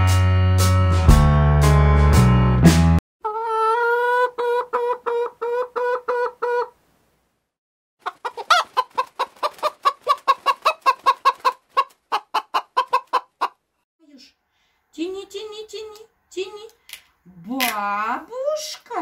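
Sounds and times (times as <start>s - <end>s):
hen clucking: 3.2s - 6.8s, 8.0s - 13.6s.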